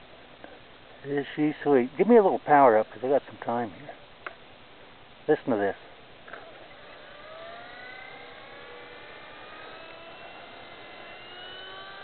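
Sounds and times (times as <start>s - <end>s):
rc helicopter rotor whine rising: 6.3s - 12.0s.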